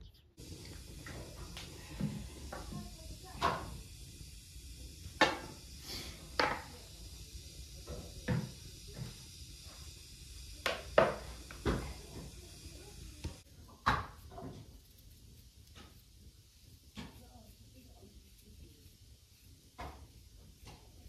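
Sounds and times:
knocks of kitchen items on table: 6.4s - 6.7s, 13.8s - 14.6s.

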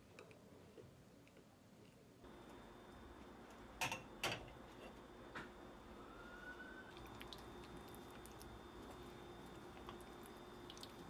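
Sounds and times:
steady low hum: 2.0s - 11.0s
faint rising whistle: 5.8s - 7.0s.

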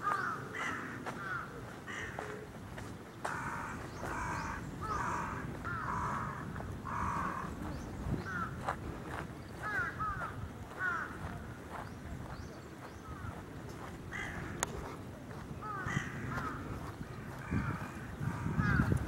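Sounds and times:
crow cawing: 0.0s - 2.5s, 3.2s - 7.6s, 8.2s - 8.6s, 9.6s - 11.5s, 13.0s - 13.4s, 14.1s - 14.7s, 15.6s - 19.0s.

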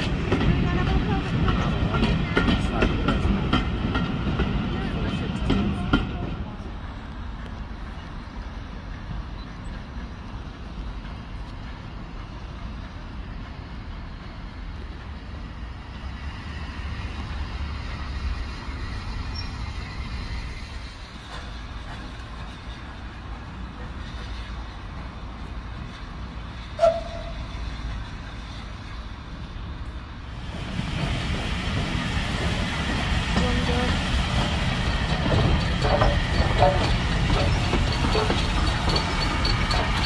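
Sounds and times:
steam locomotive rumbling: 0.0s - 40.0s
locomotive whistle toot: 26.8s - 27.5s.

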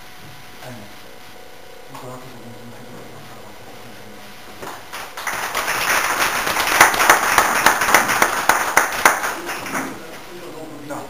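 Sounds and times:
people applauding: 4.6s - 10.0s.

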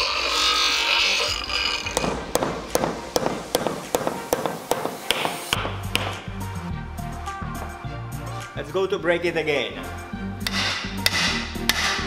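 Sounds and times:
hammer tapping on metal: 2.0s - 6.2s.

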